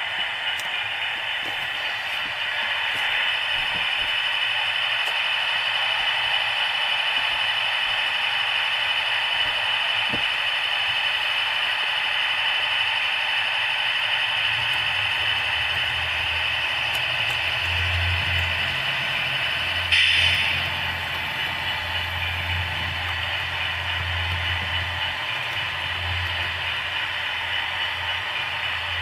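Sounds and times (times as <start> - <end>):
diesel engine idling through speaker: 0.0 - 29.0
model train hum and rattle: 0.0 - 29.0.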